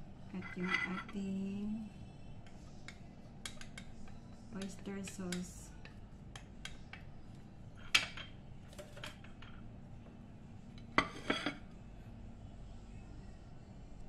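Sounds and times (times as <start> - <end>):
spoon and dishes clinking: 0.4 - 1.2, 7.8 - 9.6, 10.7 - 11.6.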